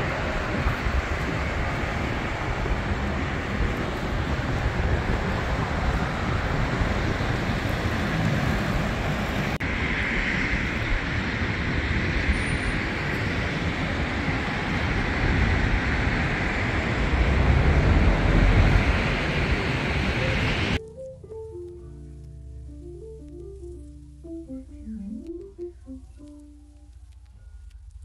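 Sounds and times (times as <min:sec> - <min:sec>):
wind buffeting microphone: 0:00.0 - 0:20.8.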